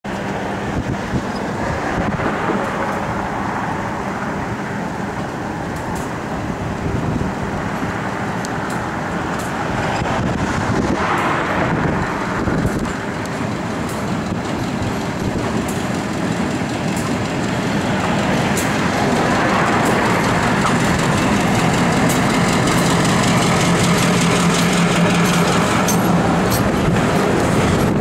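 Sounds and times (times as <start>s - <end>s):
diesel locomotive engine running: 0.0s - 28.0s
road traffic noise: 0.0s - 28.0s
wind on microphone: 0.6s - 3.3s, 9.5s - 13.2s, 25.0s - 28.0s.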